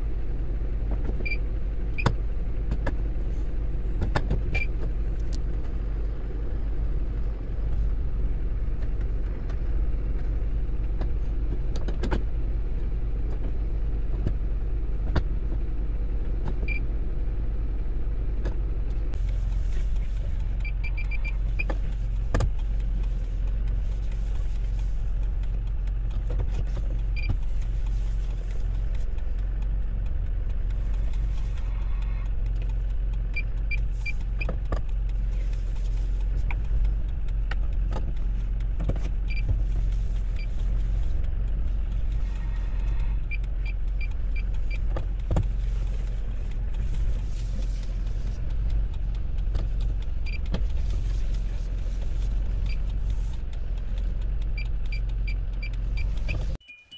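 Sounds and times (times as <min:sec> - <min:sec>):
truck engine running: 0:00.0 - 0:56.6
short high beeps: 0:56.6 - 0:56.9.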